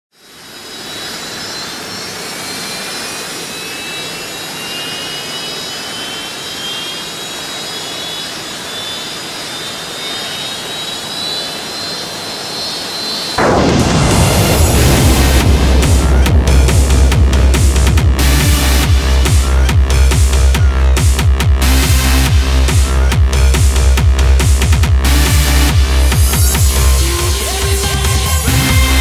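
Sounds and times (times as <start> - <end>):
thin rising whistling tones: 0.3 - 13.4
jet-like rushing sound effect: 13.3 - 27.0
electronic dance track: 13.4 - 29.0.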